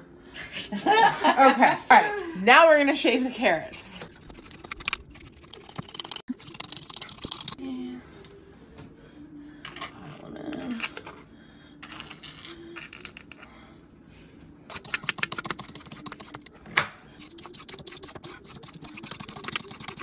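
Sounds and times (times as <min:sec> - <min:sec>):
peeler scraping carrot: 0:03.6 - 0:07.6, 0:14.7 - 0:16.5, 0:17.2 - 0:20.0.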